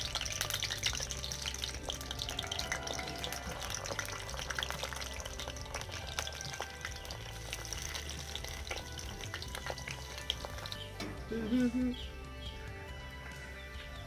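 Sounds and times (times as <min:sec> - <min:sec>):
food deep-frying in oil: 0:00.0 - 0:11.0
background music: 0:00.0 - 0:14.0.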